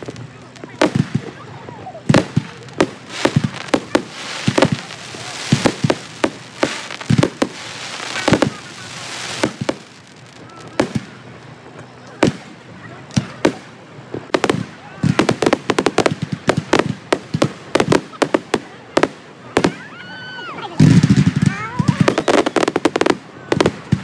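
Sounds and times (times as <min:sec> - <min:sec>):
firework crackle and rumble: 0:00.0 - 0:24.0
firework shells bursting: 0:02.0 - 0:10.2.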